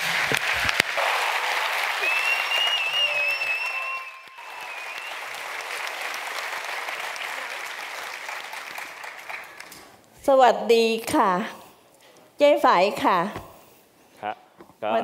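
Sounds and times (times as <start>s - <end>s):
audience applauding: 0.0s - 10.0s
wavering high whistle: 2.0s - 5.4s.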